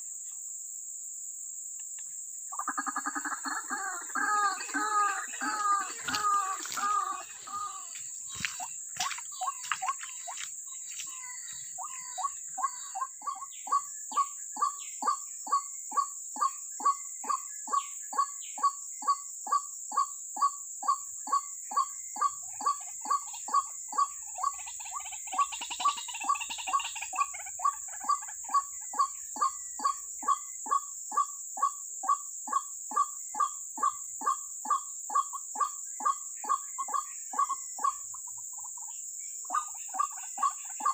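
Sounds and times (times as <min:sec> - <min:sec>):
high-pitched insect drone: 0:00.0 - 0:40.9
waterhen kwak calls: 0:02.6 - 0:10.4.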